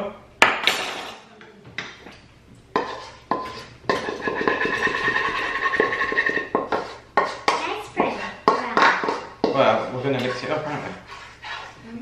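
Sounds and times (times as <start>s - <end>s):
utensil scraping ringing pan: 2.7s - 12.0s
utensil knocking on saucepan: 2.8s - 10.4s.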